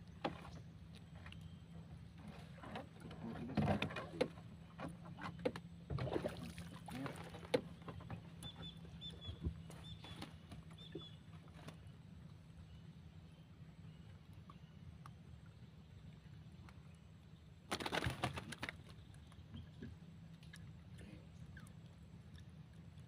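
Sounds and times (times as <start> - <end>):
bird chirping: 8.4 - 11.2.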